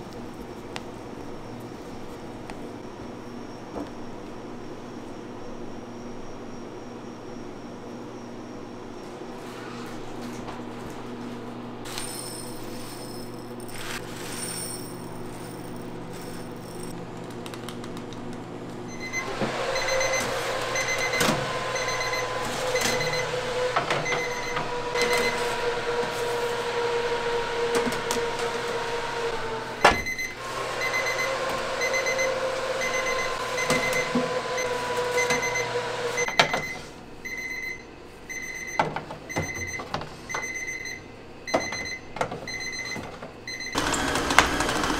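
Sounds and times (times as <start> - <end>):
kitchen machine motor humming: 9.4 - 37.0, 43.6 - 44.9.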